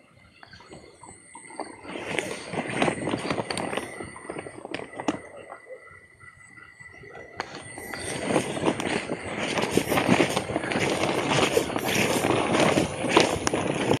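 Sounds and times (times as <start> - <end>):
footsteps through tall grass: 7.4 - 14.0
plants brushing against legs: 7.4 - 14.0.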